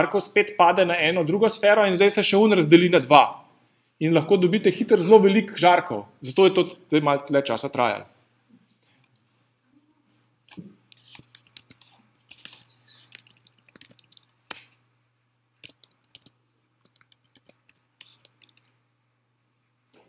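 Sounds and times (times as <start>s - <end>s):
keyboard typing: 10.9s - 14.8s, 15.6s - 18.8s.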